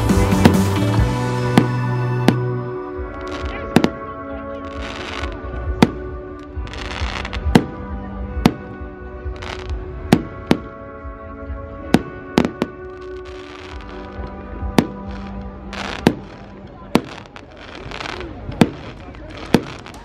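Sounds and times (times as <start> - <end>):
music: 0.0 - 20.0
firework bangs: 1.5 - 2.5, 3.2 - 4.0, 14.7 - 20.0.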